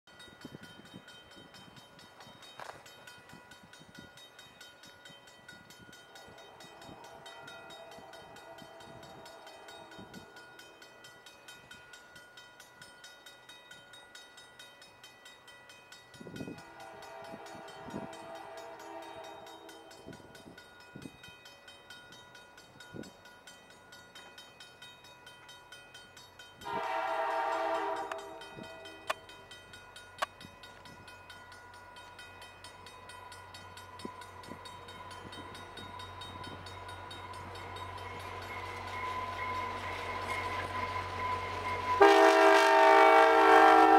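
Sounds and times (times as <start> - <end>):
locomotive engine: 6.0 - 11.3, 26.6 - 43.9
locomotive horn blasts: 16.7 - 19.9, 26.6 - 28.9, 42.0 - 43.9.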